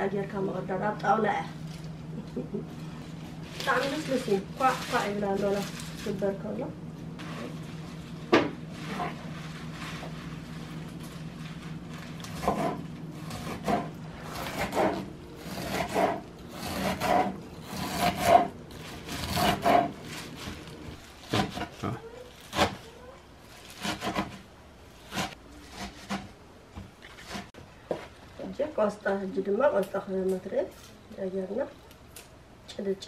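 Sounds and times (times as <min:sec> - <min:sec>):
knife chopping kale on wood: 0:12.2 - 0:20.6, 0:21.3 - 0:21.8, 0:22.5 - 0:22.8, 0:23.7 - 0:24.4.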